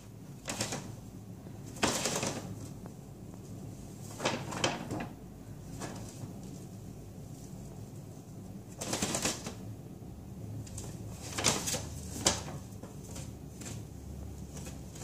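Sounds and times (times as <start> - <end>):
paper bag rustling: 3.8 - 6.7, 10.8 - 13.9.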